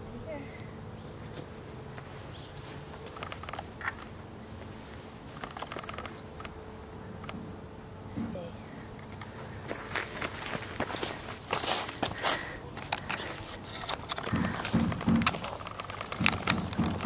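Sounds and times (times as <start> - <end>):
insect chirping: 0.0 - 17.0
rustles on grass: 1.2 - 3.2.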